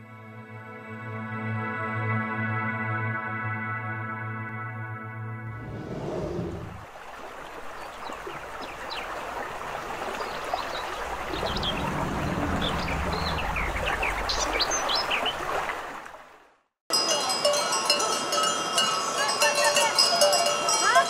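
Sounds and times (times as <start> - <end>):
birds chirping: 5.6 - 15.9
stream running: 5.6 - 21.0.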